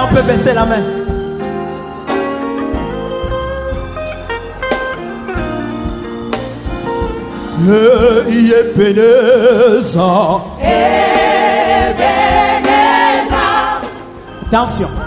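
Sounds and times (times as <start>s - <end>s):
live gospel band: 0.0s - 15.0s
man singing ornamented line: 7.5s - 10.6s.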